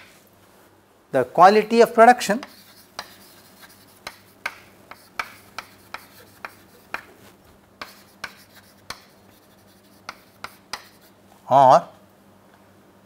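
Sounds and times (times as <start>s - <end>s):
chalk tapping and scratching: 2.3s - 11.2s.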